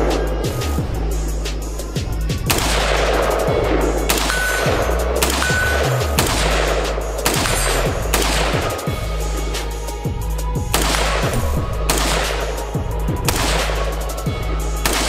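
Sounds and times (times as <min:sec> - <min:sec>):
background music with bass line: 0:00.0 - 0:15.0
rifle gunshots with echo: 0:02.5 - 0:09.2, 0:10.7 - 0:14.1, 0:14.8 - 0:15.0.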